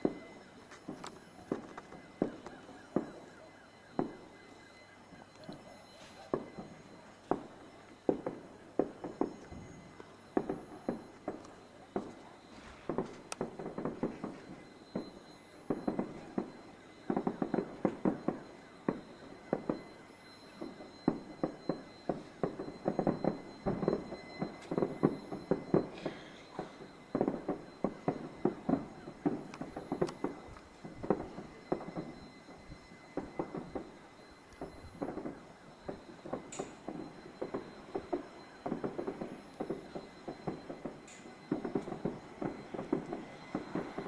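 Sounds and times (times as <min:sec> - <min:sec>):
fireworks bangs and crackles: 0:00.0 - 0:44.0.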